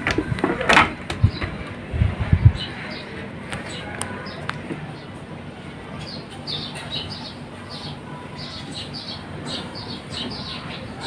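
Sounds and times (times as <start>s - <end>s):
steady low hum: 0.0s - 11.0s
small birds chirping: 1.1s - 11.0s.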